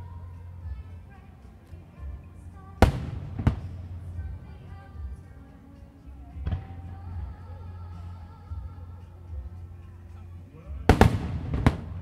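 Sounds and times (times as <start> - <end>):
music playing: 0.0 - 12.0
firework shells bursting: 2.8 - 4.3, 10.9 - 12.0.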